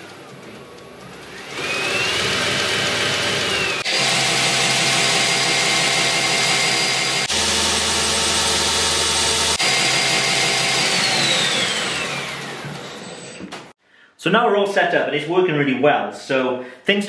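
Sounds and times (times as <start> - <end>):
belt grinder motor whine: 1.1 - 13.7.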